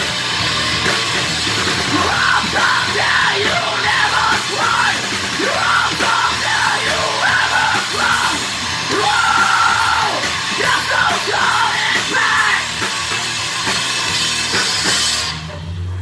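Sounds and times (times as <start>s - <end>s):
heavy rock band playing: 0.0s - 16.0s
shouted vocals: 1.9s - 12.7s.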